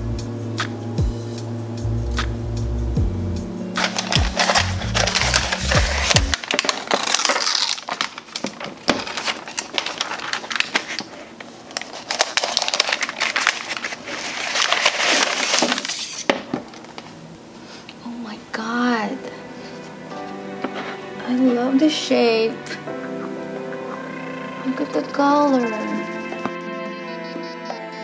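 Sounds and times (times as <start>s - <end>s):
background music: 0.0s - 6.4s, 18.1s - 28.0s
paper wrap crinkling: 3.8s - 17.2s.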